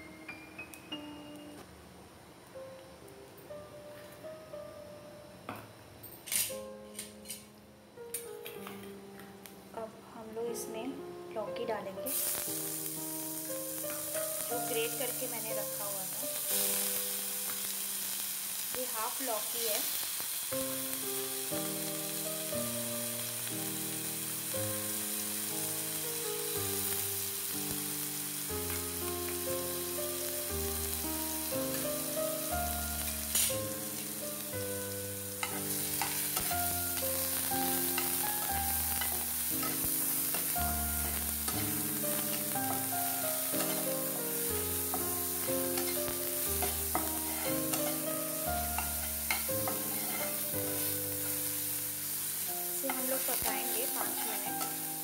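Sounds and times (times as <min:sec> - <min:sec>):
soft background music: 0:00.0 - 0:55.0
vegetables sizzling in a pan: 0:06.3 - 0:55.0
spatula stirring: 0:46.6 - 0:48.1, 0:48.8 - 0:50.5.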